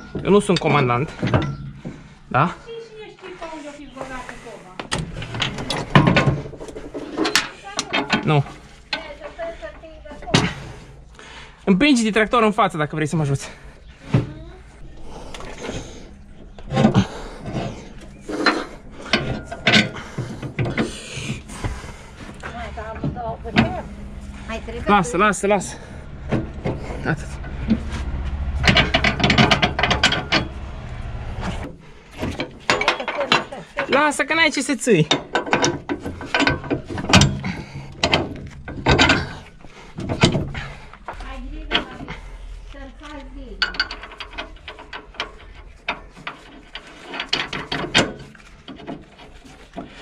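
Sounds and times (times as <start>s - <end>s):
steel parts scraping together: 15.0s - 34.2s, 43.0s - 50.0s
sharp metal knocks: 25.8s - 31.2s.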